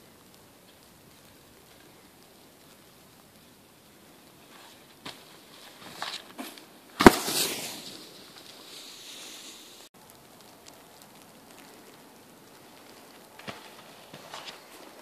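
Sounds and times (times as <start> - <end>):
skis sliding hiss: 0.0 - 9.9, 12.6 - 15.0
skis landing on packed snow: 4.5 - 9.9, 12.9 - 15.0.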